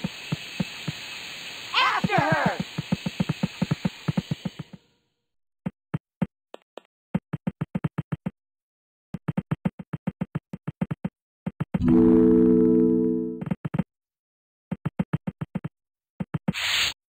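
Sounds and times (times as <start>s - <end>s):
steam hiss: 0.0s - 4.8s, 16.5s - 17.0s
cartoon running footsteps: 1.8s - 4.8s, 5.6s - 8.4s, 9.1s - 11.8s, 13.4s - 13.8s, 14.7s - 16.6s.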